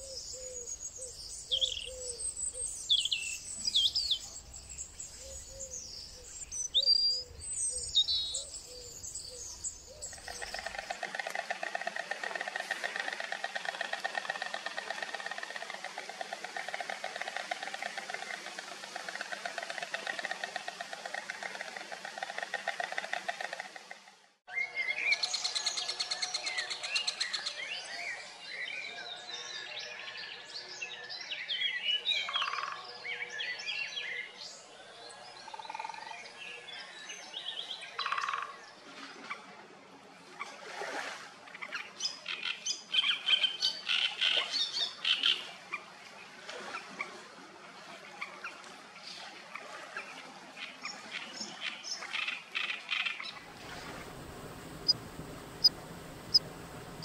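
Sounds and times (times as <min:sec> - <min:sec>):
birds singing and chirping: 0:00.0 - 0:11.0, 0:53.0 - 0:57.0
low wind-like rumble: 0:53.4 - 0:57.0.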